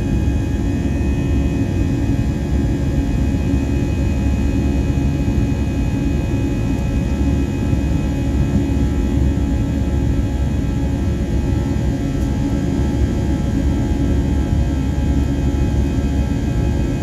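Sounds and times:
jet engine roar in cabin: 0.0 - 17.0.

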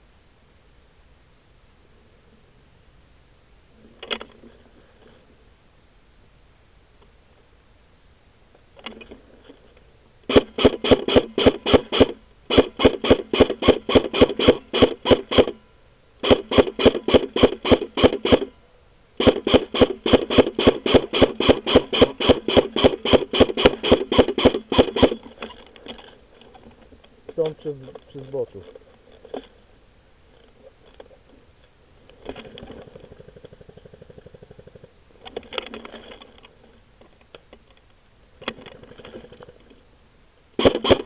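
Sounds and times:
airsoft rifle rapid fire: 10.3 - 15.6, 16.2 - 18.5, 19.2 - 25.2, 40.6 - 41.0.

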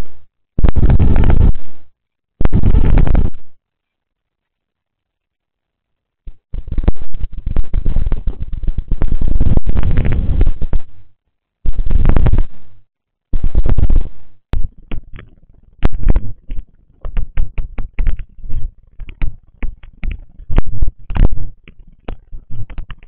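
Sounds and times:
distorted rumbling: 0.0 - 3.6, 6.3 - 23.0
sharp clicks and knocks: 6.3 - 11.0, 13.4 - 23.0.

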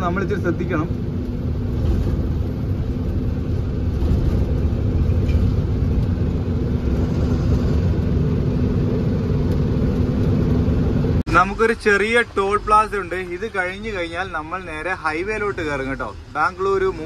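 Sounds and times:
lorry engine drone: 0.0 - 11.3
road rumble: 0.0 - 17.0.

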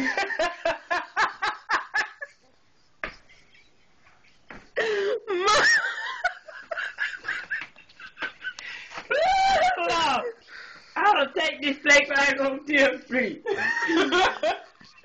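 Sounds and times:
woman laughing: 0.0 - 2.4, 3.3 - 10.4, 13.4 - 15.0.

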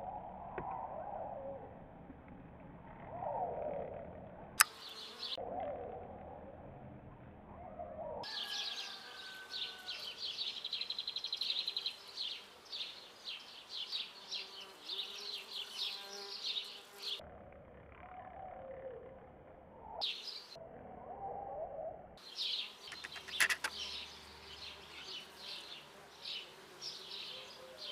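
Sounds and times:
honeybees buzzing: 4.6 - 5.4, 8.4 - 17.2, 22.2 - 27.9
birds chirping: 4.6 - 5.8, 7.6 - 17.2, 19.8 - 20.6, 22.2 - 27.9.

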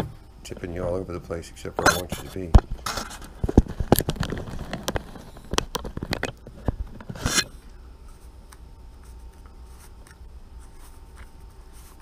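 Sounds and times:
quiet steady hum: 0.0 - 12.0
rustling scrape: 6.9 - 8.4, 9.0 - 12.0.

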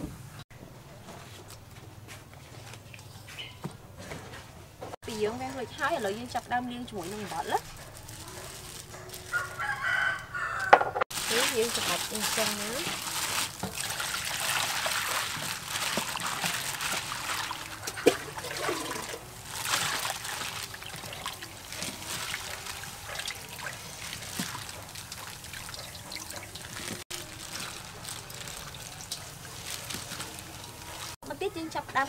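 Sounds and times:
water sloshing in a metal bowl: 11.1 - 31.2.

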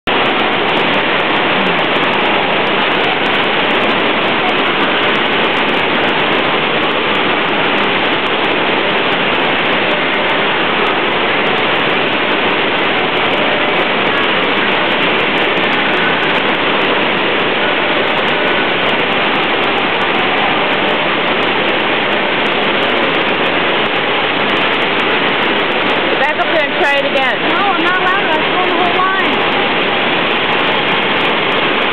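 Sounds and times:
water rushing over surf ride: 0.0 - 31.9.

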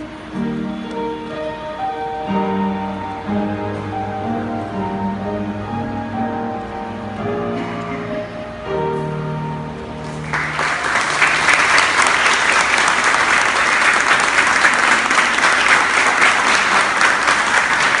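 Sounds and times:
held music notes: 0.0 - 12.0
audience applause: 10.0 - 18.0.

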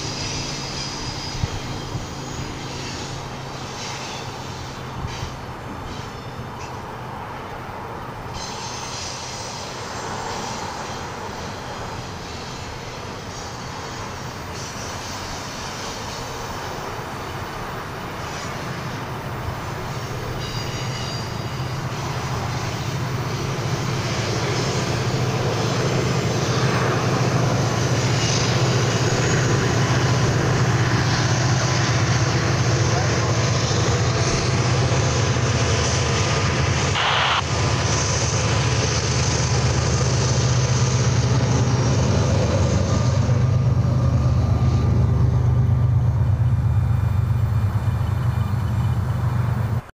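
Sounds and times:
diesel locomotive engines: 0.0 - 49.9
train wheels rumbling on rail: 0.0 - 49.9.

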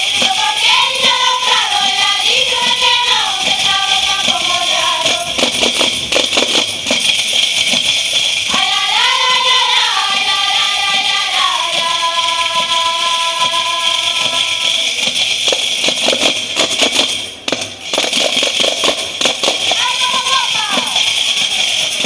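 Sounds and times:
women singing in unison: 0.0 - 5.4, 8.5 - 14.7
tambourines beaten in rhythm: 0.0 - 22.0.

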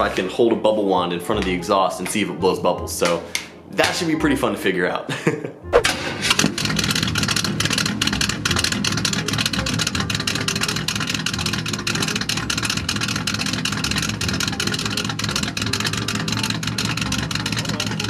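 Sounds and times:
car engine idling: 5.9 - 18.0.

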